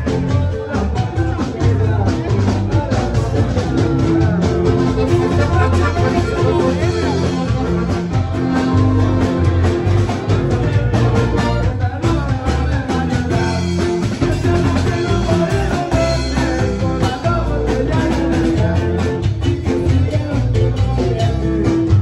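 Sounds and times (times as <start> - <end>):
loud music with heavy bass: 0.0 - 22.0.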